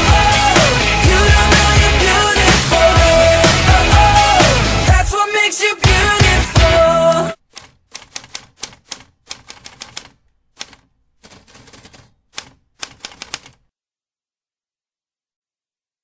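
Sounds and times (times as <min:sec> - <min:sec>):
typewriter key clicks: 0:07.5 - 0:13.6.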